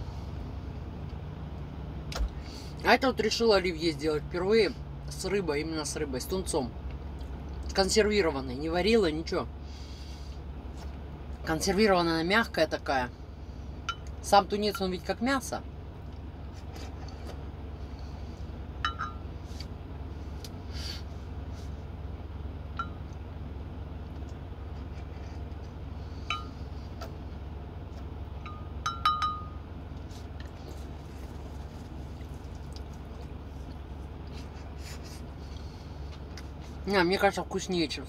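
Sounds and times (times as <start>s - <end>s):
low hum: 0.0s - 38.0s
spoon clinking against glass mug: 28.5s - 29.6s.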